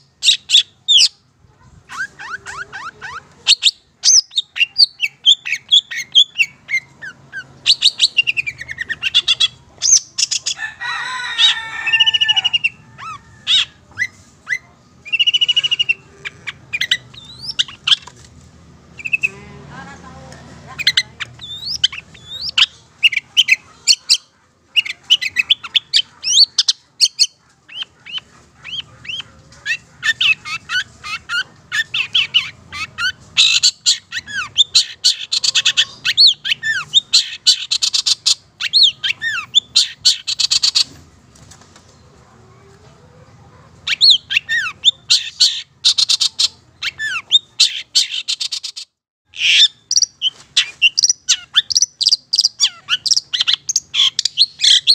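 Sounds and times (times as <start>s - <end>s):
bird singing fast chirps and trills: 1.9s - 10.6s, 15.0s - 18.0s, 19.0s - 19.4s, 20.7s - 29.2s, 43.9s - 54.9s.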